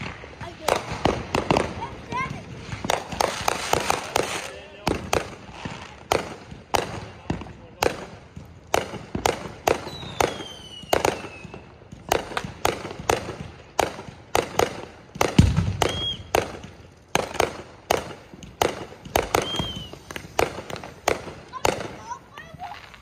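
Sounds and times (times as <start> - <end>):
fireworks bangs: 0.0 - 23.0
firework whistles: 9.7 - 11.6, 15.5 - 16.6, 19.0 - 23.0.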